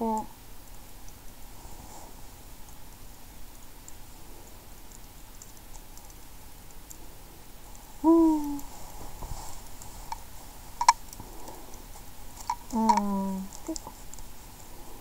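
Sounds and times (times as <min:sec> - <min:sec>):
woman humming: 0:00.0 - 0:00.3, 0:08.0 - 0:08.7, 0:12.7 - 0:14.0.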